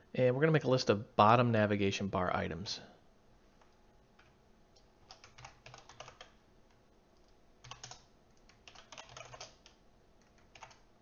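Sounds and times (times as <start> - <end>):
faint keyboard typing: 3.6 - 11.0.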